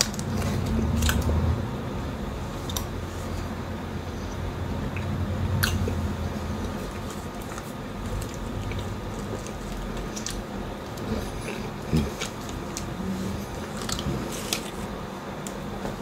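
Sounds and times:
person chewing toffee: 0.0 - 1.4, 4.1 - 15.7.

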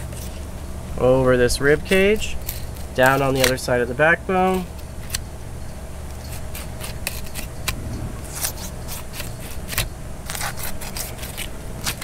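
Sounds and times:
knife scraping on fish bone: 6.1 - 7.7, 8.9 - 12.0.

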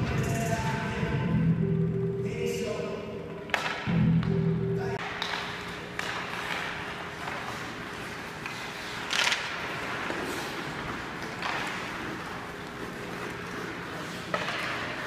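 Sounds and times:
sticks and puck knocking: 3.5 - 4.4, 5.0 - 15.0
skates scraping ice: 5.1 - 15.0.

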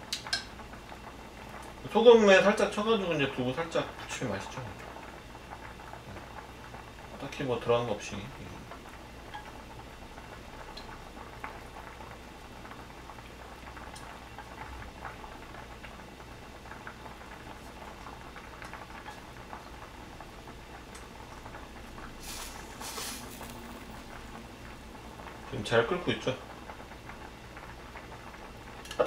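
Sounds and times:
stew bubbling in a pot: 0.0 - 29.0
rustling noises: 22.1 - 24.4.

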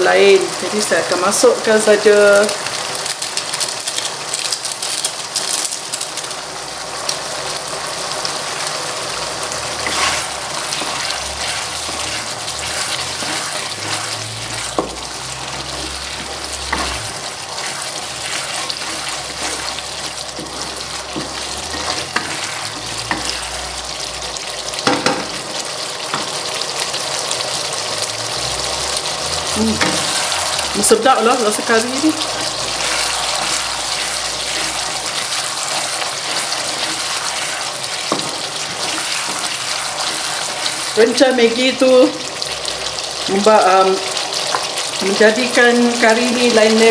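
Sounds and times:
paste sizzling in oil: 0.0 - 46.9
wooden spatula scraping pan: 9.7 - 23.8, 29.6 - 41.2.

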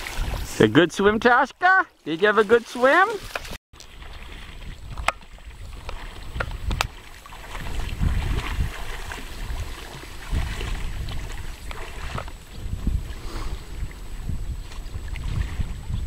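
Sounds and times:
lake water: 0.0 - 16.0
wind buffeting microphone: 3.9 - 16.0.

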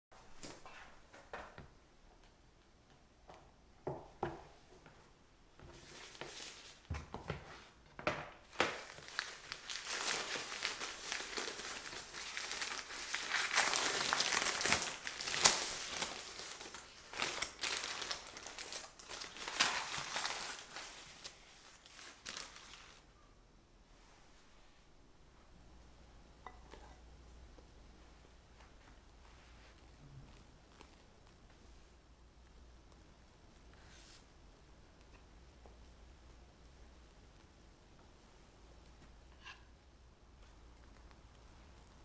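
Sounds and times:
plastic wrap and paper crinkling: 8.4 - 23.1, 28.5 - 34.3.

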